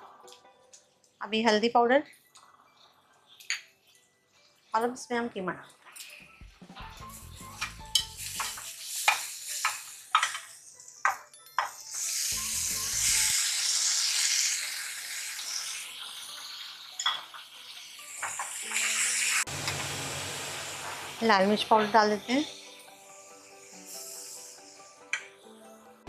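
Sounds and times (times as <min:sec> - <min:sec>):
meat sizzling in oil: 0:06.8 - 0:25.3.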